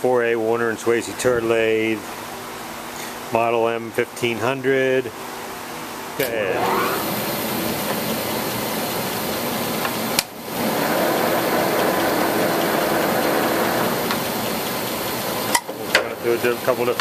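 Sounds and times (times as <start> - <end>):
lathe running: 6.2 - 17.0.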